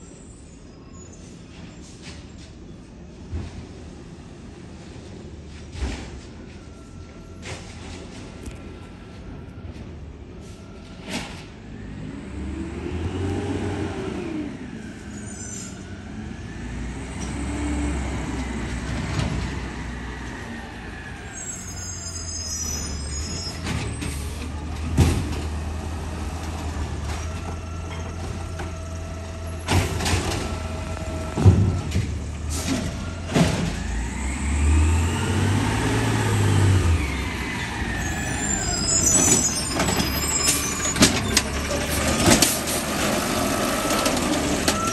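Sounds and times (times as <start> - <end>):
garbage truck engine revving: 22.7 - 44.9.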